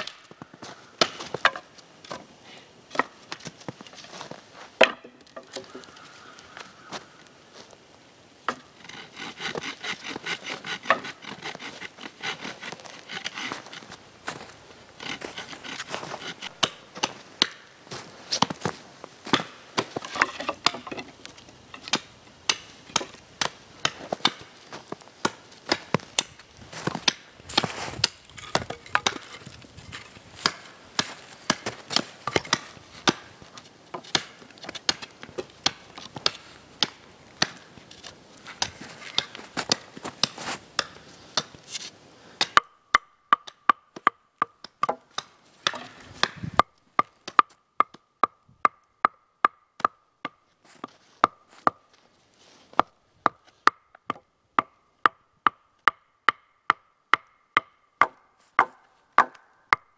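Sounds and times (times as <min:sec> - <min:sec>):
wood being chopped: 0:00.0 - 0:00.4, 0:01.0 - 0:02.2, 0:02.9 - 0:03.6, 0:04.8 - 0:05.9, 0:08.5 - 0:11.6, 0:15.0 - 0:17.7, 0:19.3 - 0:24.5, 0:27.0 - 0:29.5, 0:30.4 - 0:33.3, 0:33.9 - 0:37.7, 0:42.4 - 0:51.8, 0:52.8 - 0:59.9.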